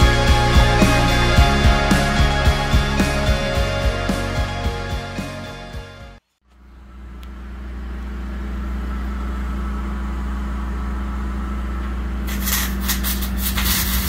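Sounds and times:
engine running steadily: 6.5s - 14.0s.

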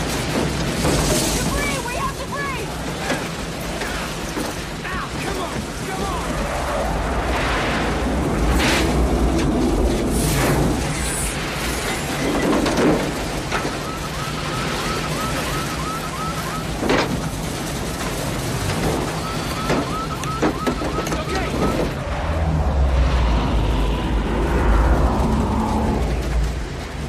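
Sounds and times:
driving rain: 0.0s - 27.0s
heavy wind: 4.7s - 13.4s, 18.3s - 27.0s
low rumble: 6.2s - 11.5s, 21.4s - 27.0s
rapid electronic chirping beep: 19.2s - 22.0s.

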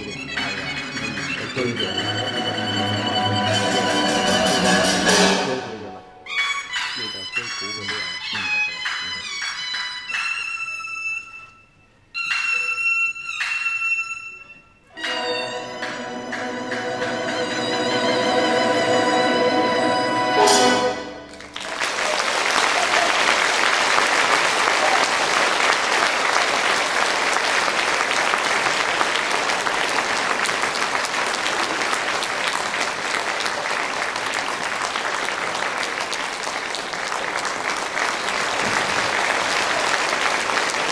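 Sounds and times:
audience applauding: 21.3s - 40.9s.

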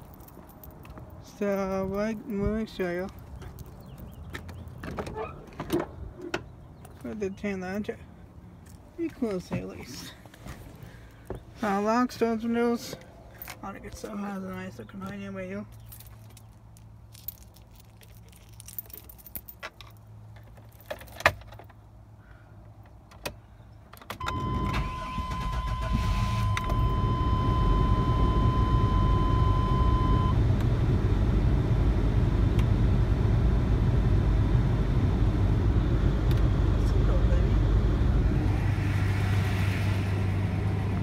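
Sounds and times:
keys jingling: 0.0s - 1.2s, 15.7s - 21.6s
seatbelt warning tone: 24.2s - 30.4s
car engine starting and idling: 24.2s - 41.0s.

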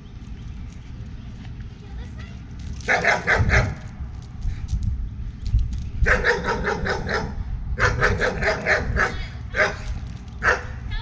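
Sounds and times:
dog barking: 2.9s - 3.8s, 6.0s - 9.8s, 10.4s - 10.8s.

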